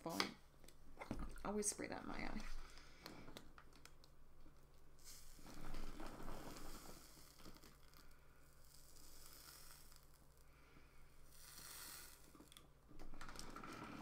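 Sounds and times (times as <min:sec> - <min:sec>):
flat iron drawn through hair: 0:08.6 - 0:10.5, 0:11.2 - 0:12.6.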